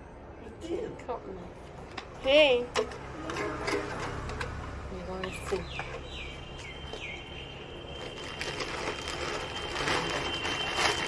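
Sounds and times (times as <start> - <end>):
plastic packaging rustling: 6.7 - 11.0.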